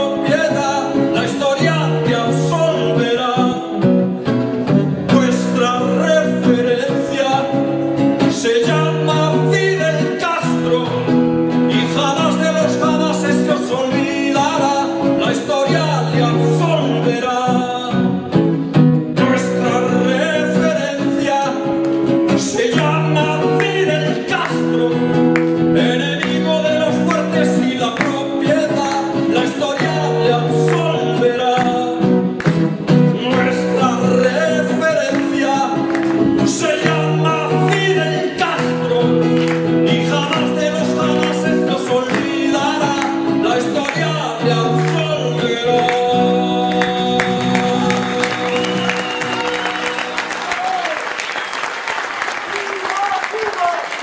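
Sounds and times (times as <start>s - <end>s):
man singing: 0.0s - 50.9s
acoustic guitar strumming: 0.0s - 51.6s
applause: 25.3s - 25.6s, 35.9s - 36.3s, 39.4s - 39.7s, 46.7s - 54.0s.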